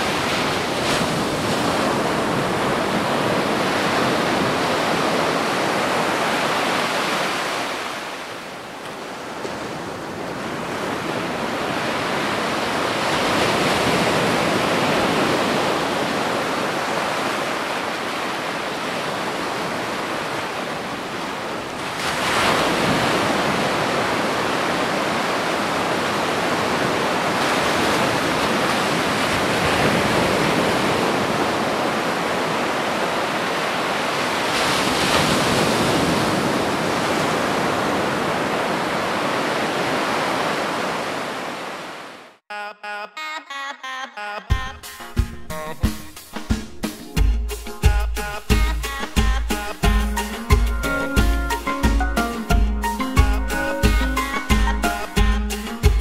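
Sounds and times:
surf breaking on shore: 0.0s - 42.4s.

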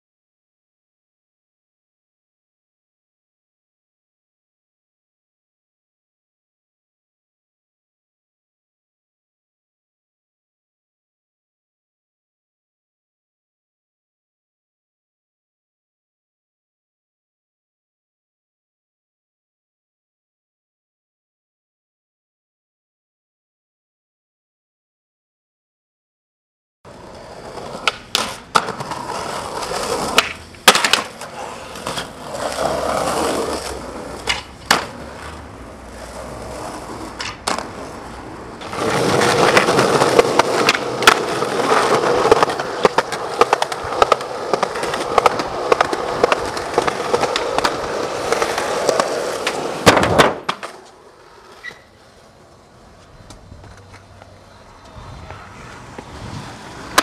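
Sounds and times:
skateboard clacking on ground: 26.9s - 57.0s
skateboard wheels rolling on concrete: 26.9s - 57.0s.

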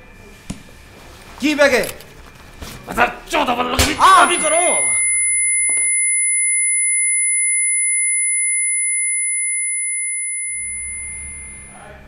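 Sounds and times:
high-pitched electronic tone: 4.2s - 11.8s
low hum: 4.4s - 12.0s.

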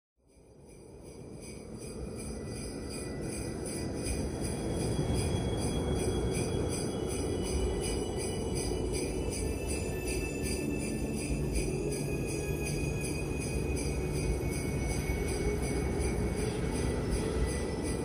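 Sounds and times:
sleigh bells jingling: 0.3s - 18.0s.

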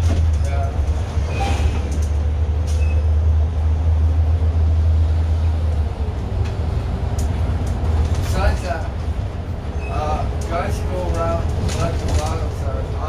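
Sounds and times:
bus engine rumble: 0.0s - 13.0s
road noise: 0.0s - 13.0s.

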